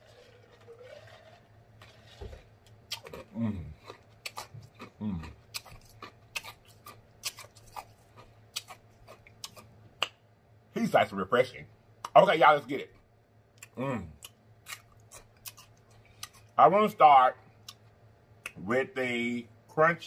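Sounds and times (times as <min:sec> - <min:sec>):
man humming: 0:03.3 - 0:03.8, 0:05.0 - 0:05.3, 0:13.8 - 0:14.2.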